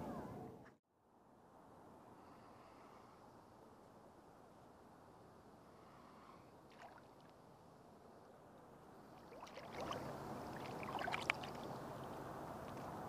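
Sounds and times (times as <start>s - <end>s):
water splashing and sloshing: 6.7s - 7.4s, 9.0s - 13.0s.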